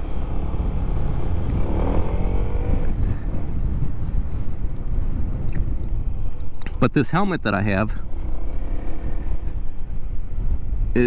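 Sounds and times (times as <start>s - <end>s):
motorcycle engine running: 0.0s - 5.4s
wind buffeting microphone: 0.0s - 11.0s.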